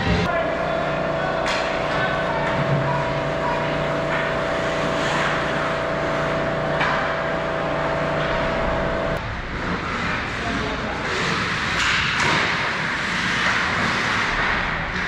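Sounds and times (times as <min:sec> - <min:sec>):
steady humming drone: 0:00.0 - 0:15.0
skates scraping on ice: 0:09.6 - 0:15.0.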